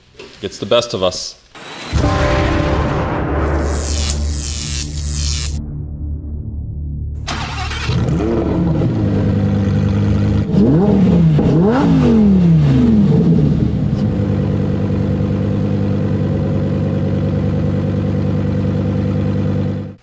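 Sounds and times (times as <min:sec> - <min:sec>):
sports car engine idling and revving: 0:07.8 - 0:20.0.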